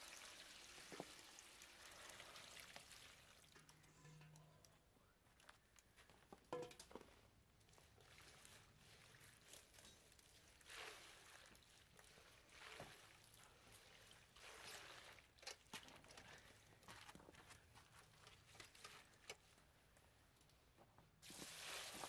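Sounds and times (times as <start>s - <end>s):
water sloshing in bucket: 7.7s - 16.8s, 21.2s - 22.0s.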